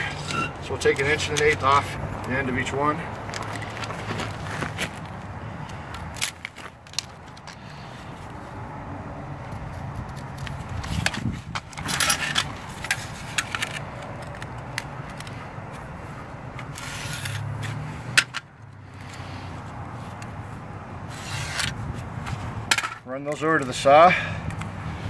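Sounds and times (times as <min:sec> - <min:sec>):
tools scraping and rattling on concrete: 0:00.0 - 0:02.0, 0:10.1 - 0:15.4, 0:16.6 - 0:19.2, 0:21.1 - 0:24.3.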